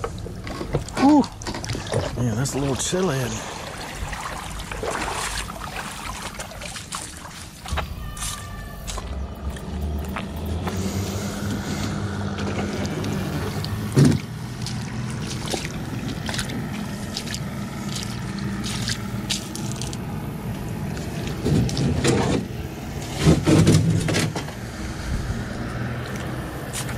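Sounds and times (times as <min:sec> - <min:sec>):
low motor hum: 0:00.0 - 0:26.9
splashing footsteps in water: 0:00.5 - 0:22.3, 0:25.4 - 0:26.9
boat hull scraping and knocking: 0:11.8 - 0:16.7, 0:21.1 - 0:24.6.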